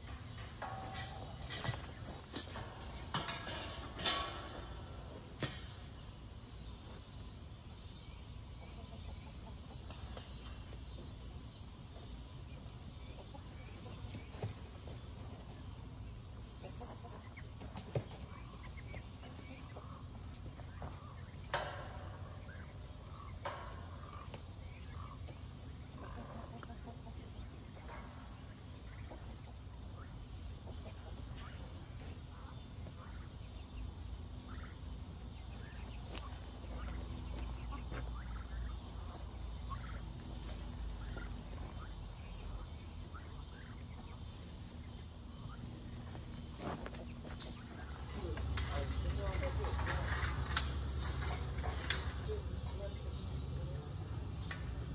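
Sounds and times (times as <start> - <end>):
wire panels clanking: 0.0 - 6.1, 20.7 - 25.1, 46.0 - 54.9
chickens clucking: 0.0 - 54.9.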